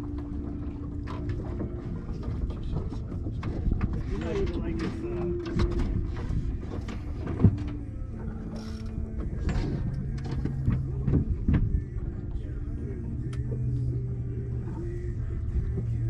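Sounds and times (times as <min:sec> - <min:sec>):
boat engine humming: 0:00.0 - 0:16.0.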